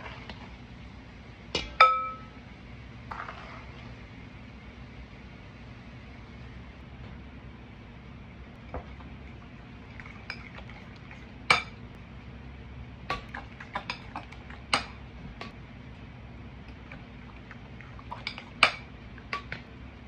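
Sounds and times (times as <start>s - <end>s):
steady low hum: 0.0s - 20.0s
metal utensil knocking a bowl: 1.6s - 2.3s.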